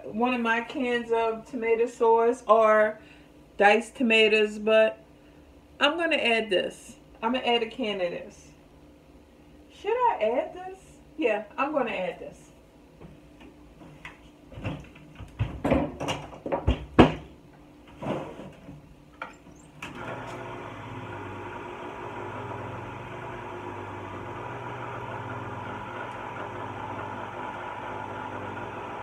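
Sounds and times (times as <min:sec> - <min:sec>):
kitchen knocks and clatters: 0:14.5 - 0:17.4
kitchen appliance humming: 0:19.5 - 0:29.0.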